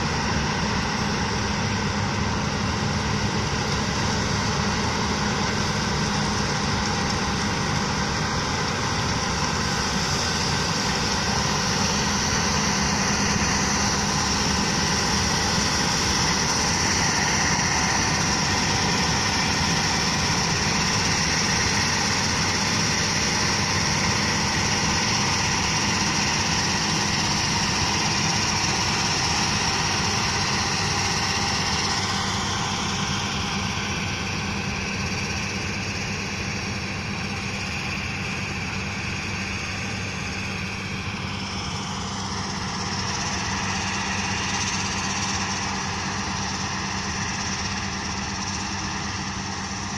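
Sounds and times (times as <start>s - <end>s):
combine harvester engine drone: 0.0s - 49.9s.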